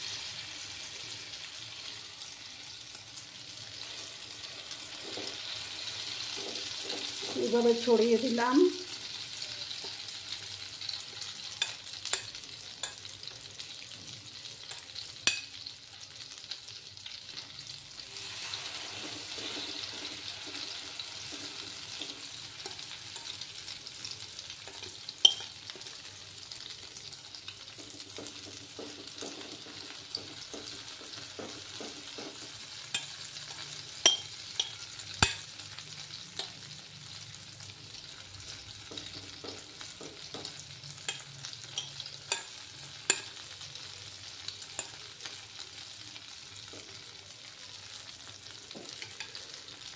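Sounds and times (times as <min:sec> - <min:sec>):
batter sizzling in oil: 0:00.0 - 0:49.9
steel spoon clinking on bowl: 0:24.7 - 0:25.6, 0:32.9 - 0:33.2, 0:34.0 - 0:35.5, 0:41.1 - 0:43.4.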